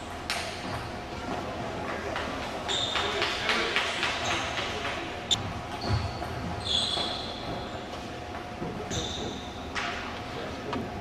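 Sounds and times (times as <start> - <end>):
sneakers squeaking on gym floor: 2.7 - 3.3, 4.0 - 8.0, 8.8 - 9.7.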